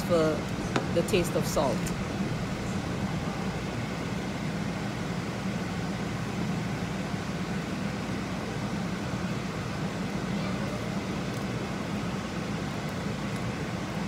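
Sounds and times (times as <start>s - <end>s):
gas stovetop hiss: 0.0s - 10.2s
pot boiling: 0.0s - 14.0s
steady low hum: 0.0s - 14.0s.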